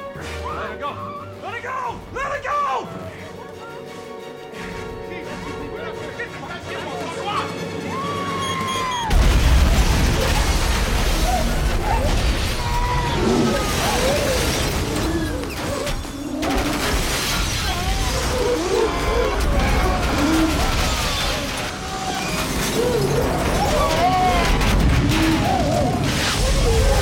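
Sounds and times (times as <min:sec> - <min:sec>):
film music: 0:00.0 - 0:27.0
debris shattering: 0:07.8 - 0:27.0
heavy explosion boom: 0:09.1 - 0:12.7.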